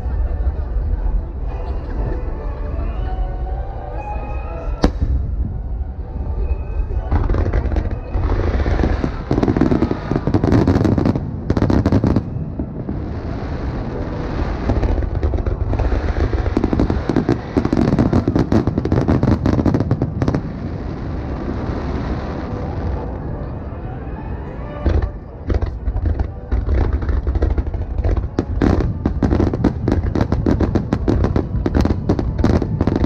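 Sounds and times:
low rumble of booms: 4.8s - 21.4s
fireworks crackling: 7.0s - 23.1s, 25.4s - 33.0s.

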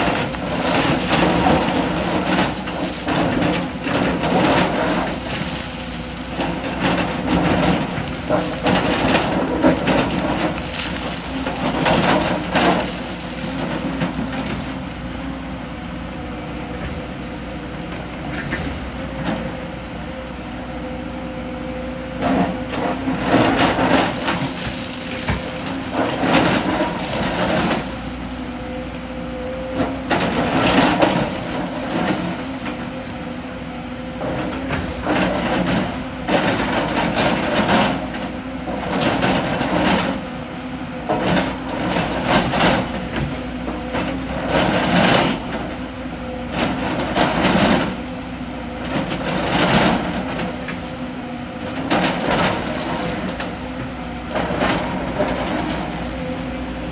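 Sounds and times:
bucket scraping rock and stone: 0.0s - 14.6s, 23.4s - 28.5s, 54.3s - 56.9s
excavator diesel engine running: 0.0s - 56.9s.

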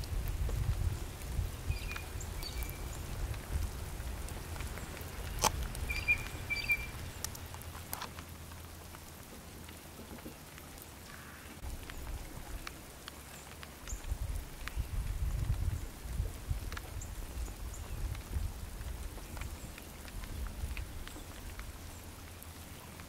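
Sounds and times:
water dripping on driveway: 0.0s - 23.0s
high bird chirps: 1.7s - 2.8s, 5.8s - 7.0s.

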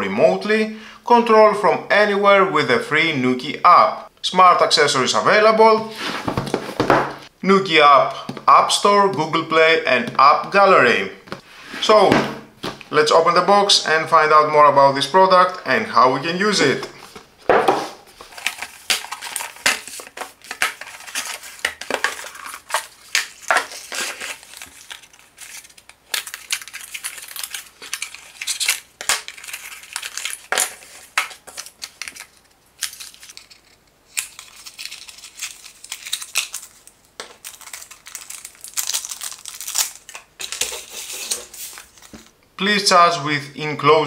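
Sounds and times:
cardboard box packaging handled: 16.7s - 33.5s.

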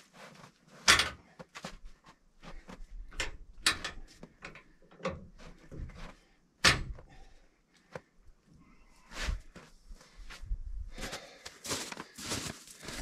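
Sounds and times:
vehicle jack knocking and clunking: 6.6s - 7.2s.

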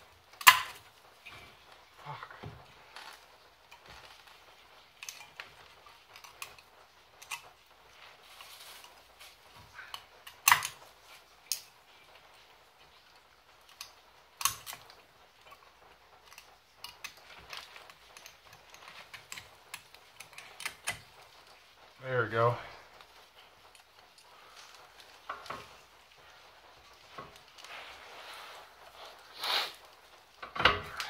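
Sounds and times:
metal parts clicking and tapping: 0.3s - 1.4s, 5.0s - 7.6s, 9.9s - 10.8s, 16.2s - 21.5s.

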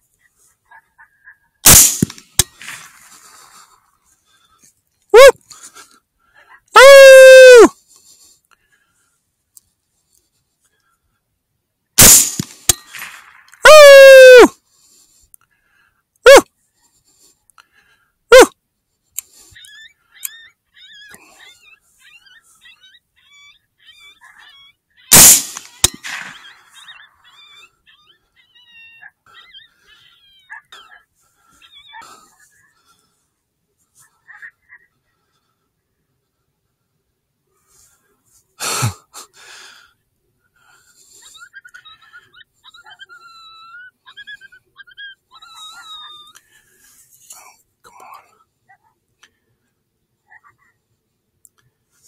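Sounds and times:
rifle shot with echo: 1.7s - 3.2s, 12.0s - 13.4s, 25.1s - 26.7s
high wavering yips: 6.8s - 7.7s, 13.6s - 14.5s
high wavering yelping calls: 12.0s - 14.5s, 19.3s - 32.7s, 41.0s - 46.5s.

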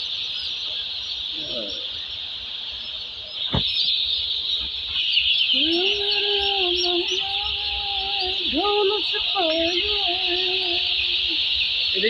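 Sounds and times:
chicks cheeping: 0.0s - 12.0s
single knock: 3.5s - 3.7s
long held pitched tone: 5.5s - 12.0s.

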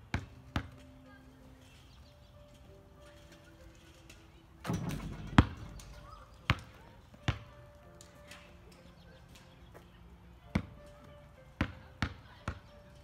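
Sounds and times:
basketball bouncing on asphalt: 0.0s - 1.1s, 4.7s - 8.3s, 10.4s - 13.0s
basketball rattling rim and net: 2.6s - 7.5s.

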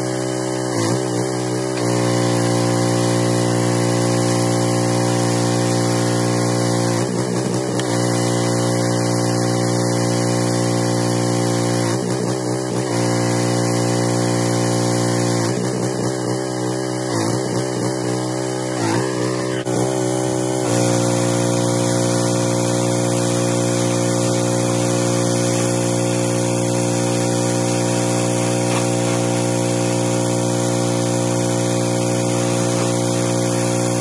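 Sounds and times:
pressure washer motor hum: 0.0s - 34.0s
foam spraying hiss: 20.7s - 34.0s.

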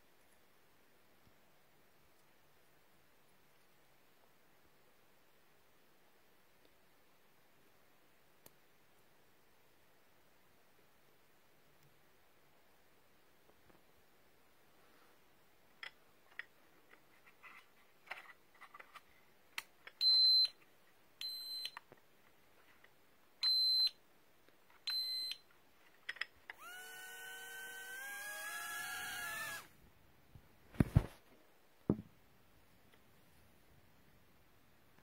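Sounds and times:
drone motors whining: 26.6s - 29.7s.

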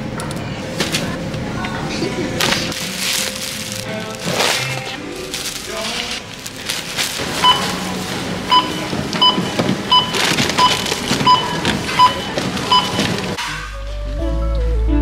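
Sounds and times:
barcode scanner beeping: 7.4s - 13.4s.

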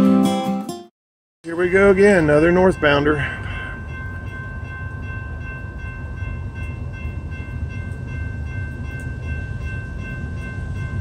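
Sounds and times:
crossing warning bell ringing: 1.4s - 11.0s
freight train rumble: 1.4s - 11.0s.

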